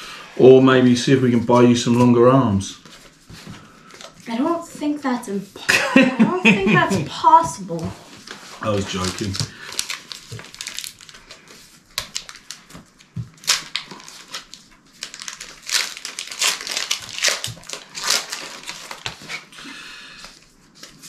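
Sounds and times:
foil wrappers crinkling: 8.2s - 19.6s.

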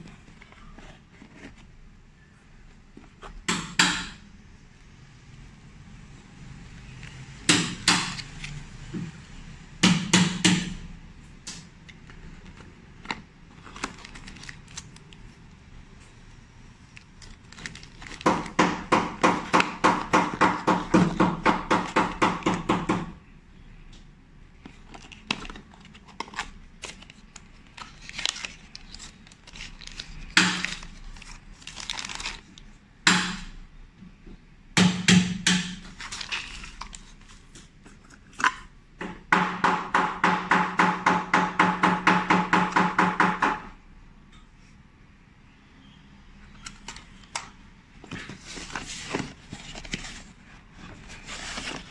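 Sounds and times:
cardboard and plastic handling: 0.0s - 1.8s, 11.8s - 16.1s, 16.9s - 22.7s, 24.6s - 32.8s, 35.8s - 38.7s, 46.4s - 51.9s.

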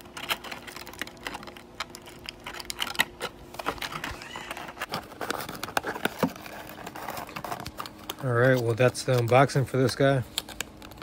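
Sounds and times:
plastic packaging clicking and crackling: 0.0s - 11.0s.

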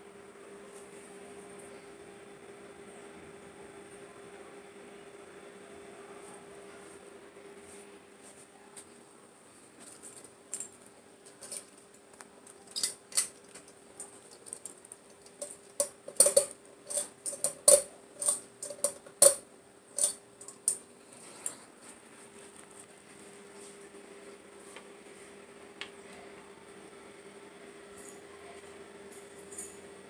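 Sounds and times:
ceiling fan motor hum: 0.0s - 30.0s
metal pull chain rattling: 15.2s - 19.4s, 20.0s - 20.8s.

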